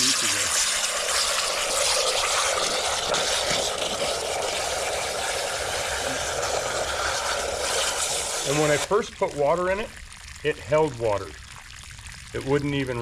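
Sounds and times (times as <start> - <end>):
water splashing onto gravel: 6.8 - 13.0.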